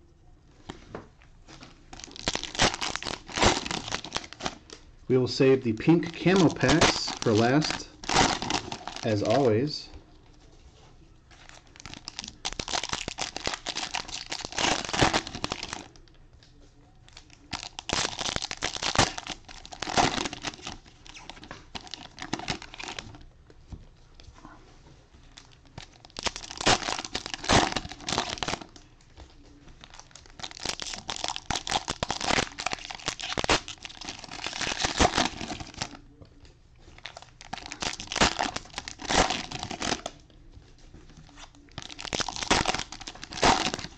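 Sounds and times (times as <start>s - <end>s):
cellophane tearing and crinkling: 1.9s - 4.8s, 5.5s - 9.6s, 11.4s - 16.0s, 17.1s - 23.2s, 25.3s - 28.8s, 29.8s - 36.0s, 37.0s - 40.2s, 41.2s - 43.9s.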